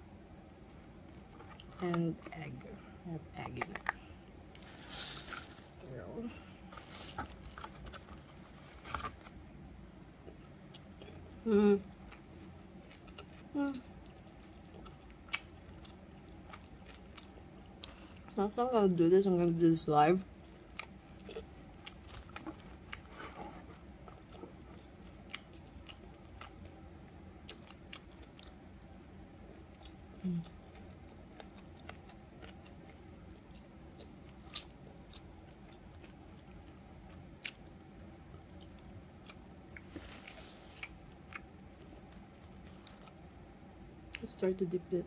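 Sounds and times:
close chewing: 0:20.4 - 0:26.7, 0:27.4 - 0:43.2.

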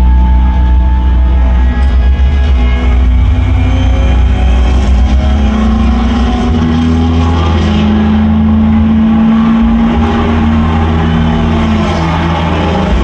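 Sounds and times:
race car engine at full throttle: 0:00.0 - 0:13.0.

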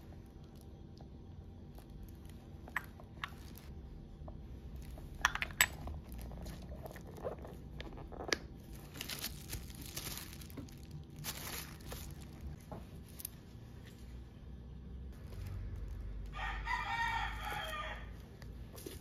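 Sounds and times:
tissue paper and leather rustling: 0:08.6 - 0:14.0.

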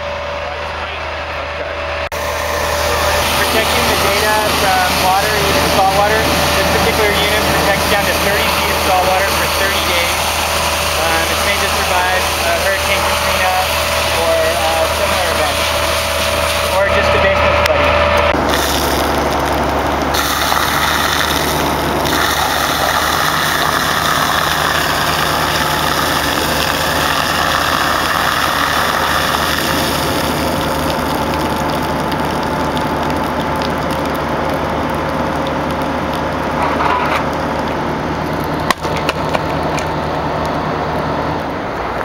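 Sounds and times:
excavator diesel engine running: 0:00.0 - 0:42.0.

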